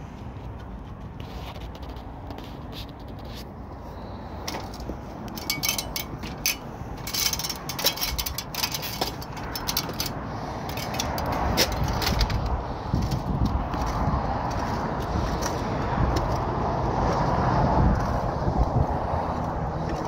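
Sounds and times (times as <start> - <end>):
scraping and rustling on roof: 0.0 - 4.0.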